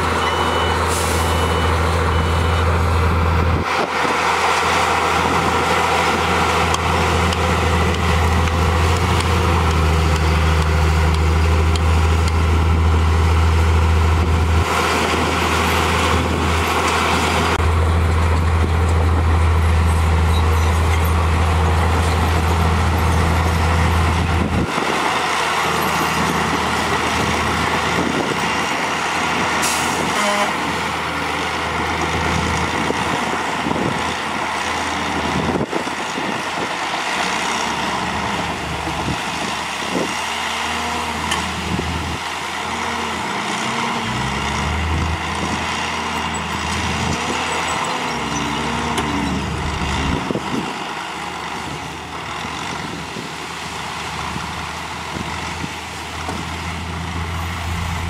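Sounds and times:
reversing alarm beeping: 0:00.0 - 0:02.8
bulldozer pushing soil: 0:00.0 - 0:58.0
dump truck diesel engine: 0:00.0 - 0:58.0.

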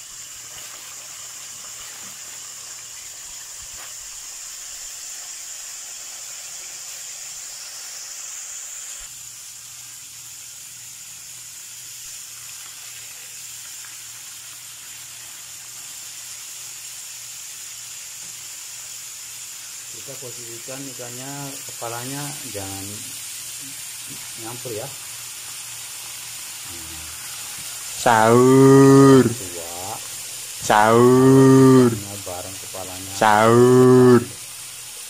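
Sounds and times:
fish deep-frying in oil: 0:00.0 - 0:28.0.

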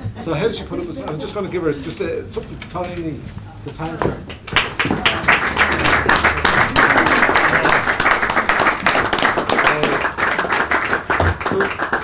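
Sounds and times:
audience applauding: 0:04.4 - 0:12.0.

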